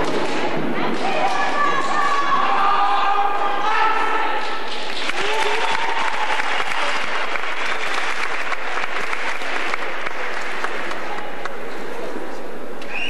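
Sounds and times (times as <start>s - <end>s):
audience applauding and cheering: 4.8s - 11.6s.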